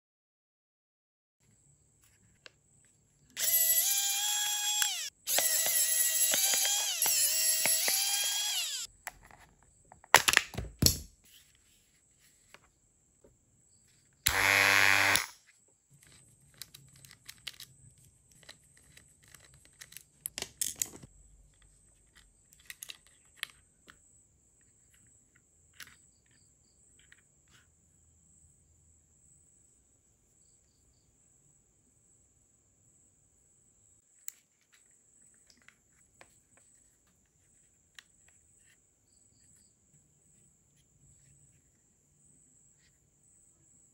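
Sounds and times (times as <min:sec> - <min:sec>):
small electric motor whirring: 0:03.4 - 0:08.9, 0:14.3 - 0:15.4
small parts clattering: 0:16.0 - 0:24.0.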